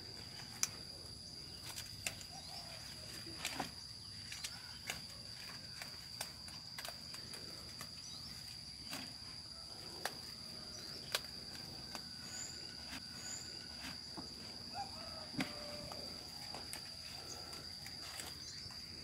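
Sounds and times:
high-pitched insect drone: 0.0s - 19.0s
leafy vegetables snapping: 3.3s - 8.0s, 11.0s - 12.2s.

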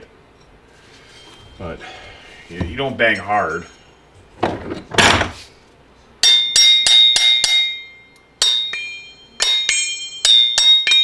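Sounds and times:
hammer striking metal: 6.2s - 11.0s.

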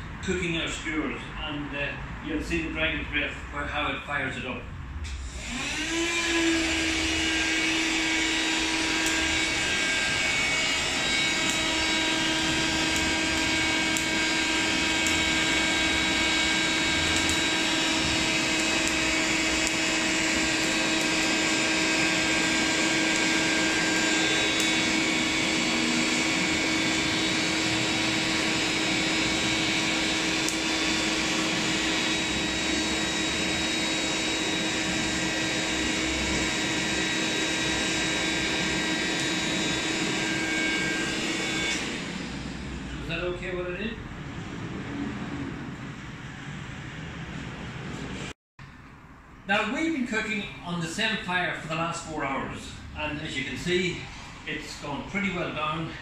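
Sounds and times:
electric blower whining: 5.0s - 43.3s.

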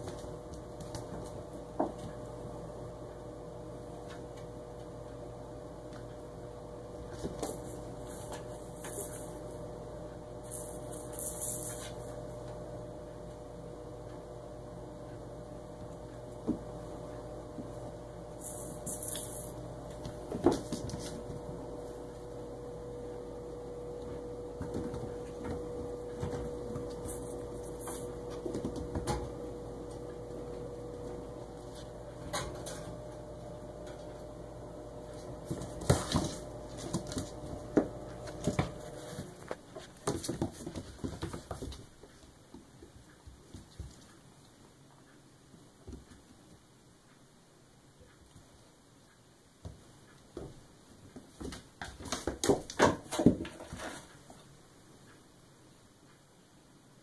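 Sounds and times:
kittens knocking and scuffling: 0.0s - 2.4s, 7.0s - 9.4s, 15.8s - 22.6s, 23.3s - 42.7s, 51.2s - 54.4s
electrical hum: 0.0s - 57.0s.

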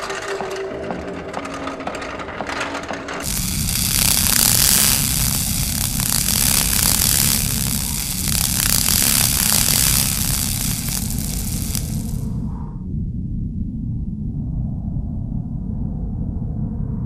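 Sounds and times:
low rumble: 0.0s - 17.0s
crackling sparks: 3.1s - 12.4s
gas cutting torch hissing roar: 3.2s - 12.3s.

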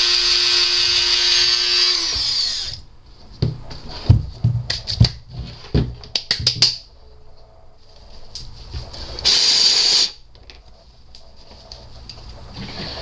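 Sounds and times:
rotary tool whining: 0.0s - 2.8s.

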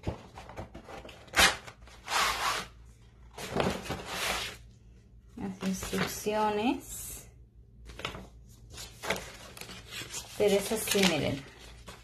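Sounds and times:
cardboard and paper rustling: 0.0s - 2.6s, 3.3s - 4.6s, 5.5s - 6.3s, 7.9s - 12.0s.

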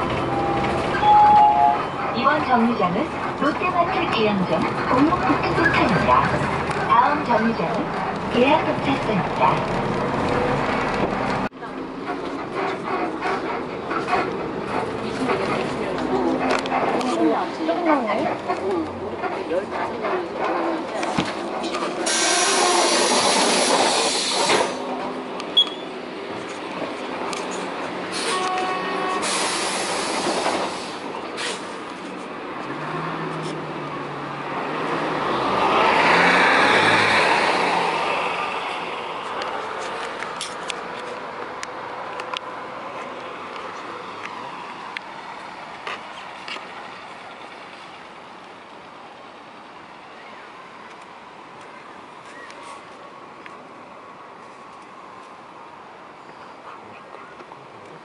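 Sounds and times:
passing vehicle rush: 0.0s - 56.2s
bus engine rumble: 0.0s - 58.0s
short high beep: 0.3s - 2.0s, 25.6s - 25.9s
bus air brakes hissing: 22.0s - 24.9s, 28.0s - 31.8s.

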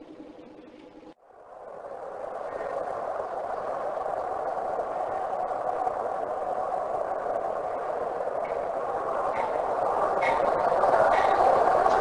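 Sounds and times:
train rolling along rails: 0.0s - 12.0s.

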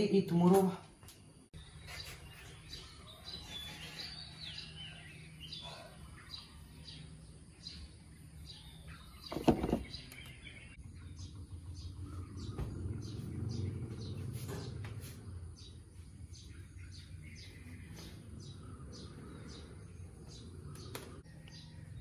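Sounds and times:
small birds chirping: 0.0s - 22.0s
steady low hum: 10.5s - 22.0s.

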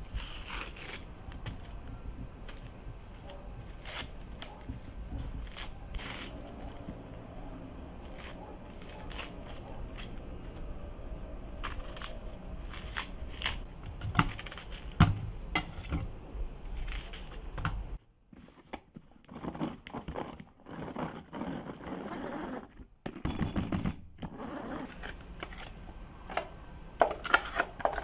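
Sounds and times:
knife cutting onion: 0.0s - 10.9s, 11.5s - 16.0s.

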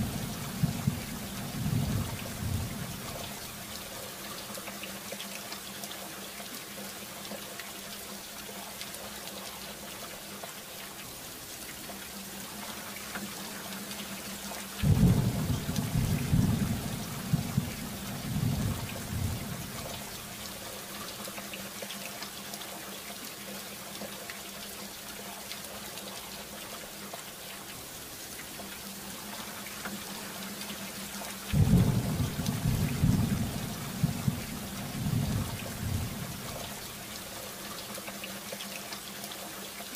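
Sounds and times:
thunder rumbling: 0.0s - 3.0s, 14.8s - 19.9s, 31.6s - 36.5s
steady rain falling: 0.0s - 39.9s.

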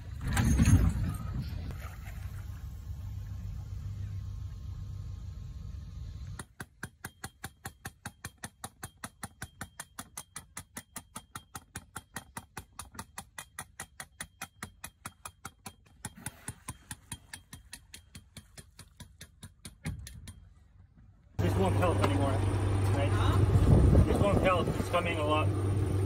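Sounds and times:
boat moving through water: 0.0s - 5.8s, 21.4s - 26.0s.

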